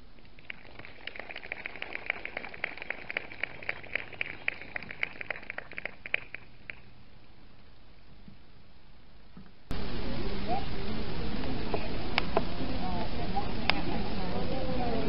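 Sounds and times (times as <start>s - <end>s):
light applause from small crowd: 0.4s - 6.9s.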